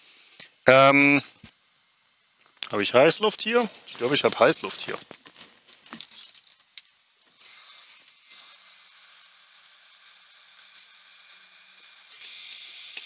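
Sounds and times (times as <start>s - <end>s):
hot air hissing: 0.0s - 5.0s, 7.3s - 9.6s.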